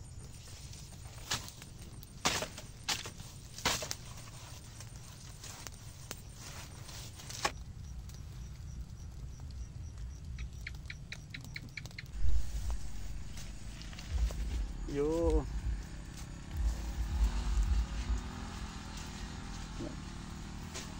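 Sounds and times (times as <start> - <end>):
grass and brush crackling burning: 0.0 - 20.9
wind rumble on microphone: 7.6 - 20.0
fire hissing flare: 12.1 - 20.9
heavy low thump: 12.2 - 18.2.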